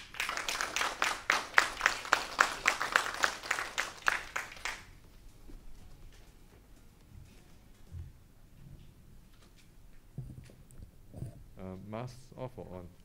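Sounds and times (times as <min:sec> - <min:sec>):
audience applauding: 0:00.0 - 0:05.0
loud individual claps: 0:00.0 - 0:05.0.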